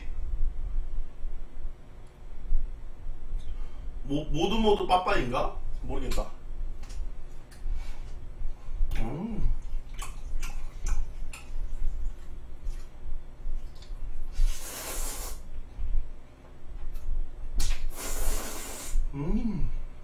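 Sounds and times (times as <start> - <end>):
soft eating clicks: 9.8 - 13.0
man slurping noodles: 14.4 - 15.4, 17.9 - 19.1
man humming: 19.1 - 19.9.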